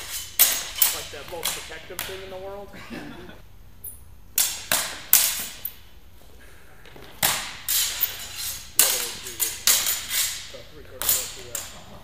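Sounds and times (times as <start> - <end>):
training swords clacking: 0.0 - 2.6, 4.3 - 5.8, 6.8 - 12.0.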